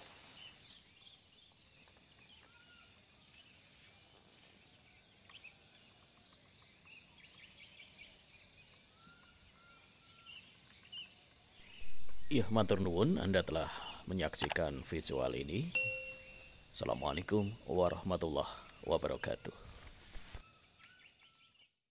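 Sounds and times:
bird chirps and calls: 9.0s - 15.1s.

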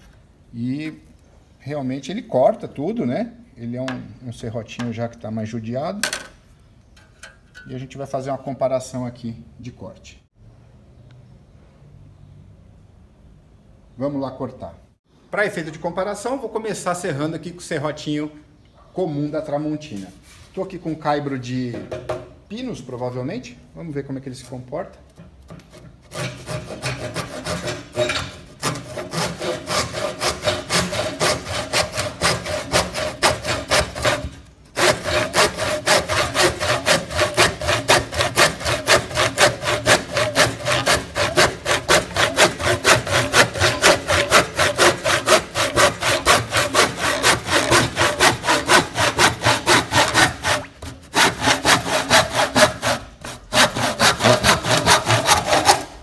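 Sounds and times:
handsaw sawing wood: 25.7s - 56.0s.

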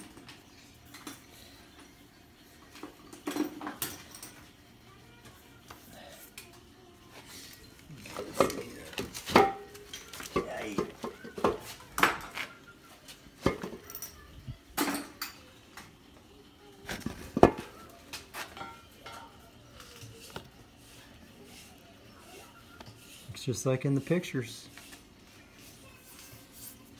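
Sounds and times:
metal tools clinking: 13.4s - 15.4s.

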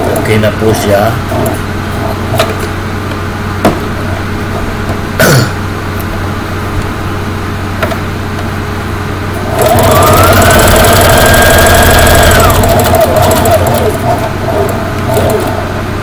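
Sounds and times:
low steady hum: 0.0s - 16.0s
sewing machine stitching: 9.4s - 15.6s.

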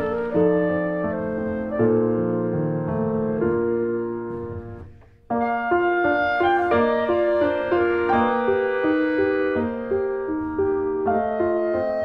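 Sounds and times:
piano-like keyboard music: 0.0s - 12.0s.

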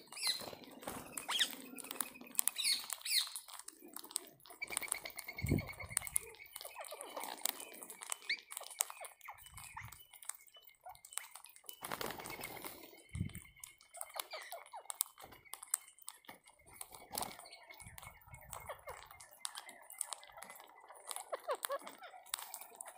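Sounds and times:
birds cracking seeds: 0.0s - 22.9s.

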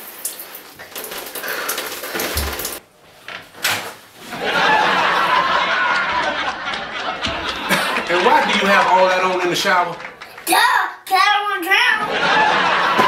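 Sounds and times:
shower water running: 0.0s - 2.8s, 7.2s - 10.5s.

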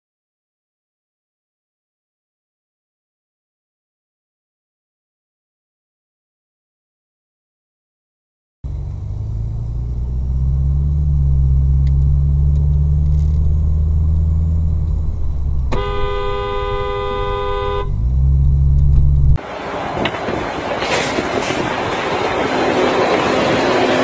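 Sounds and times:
car engine humming: 8.6s - 24.0s
rushing road and wind noise: 8.7s - 24.0s
car horn blaring: 15.7s - 18.3s.

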